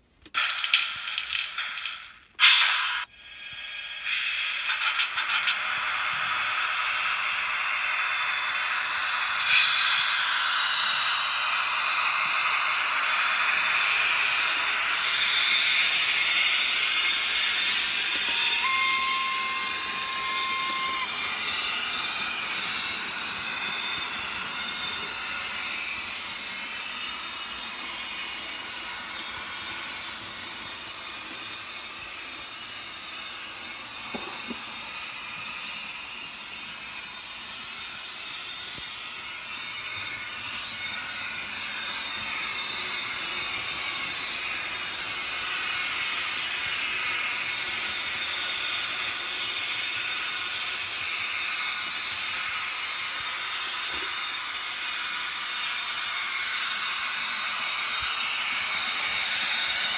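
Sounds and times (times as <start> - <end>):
model train wheels and motor hiss: 0.0 - 59.9
steady high tone: 2.4 - 48.6.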